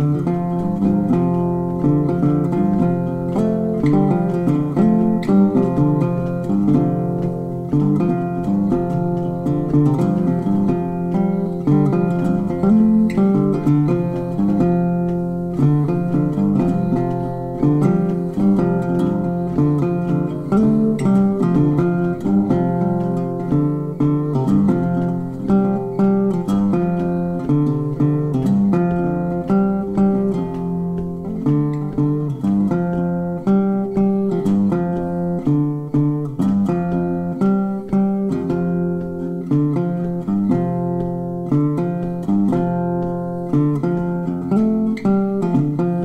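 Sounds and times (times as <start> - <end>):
guitar plucking notes and chords: 0.0 - 46.0.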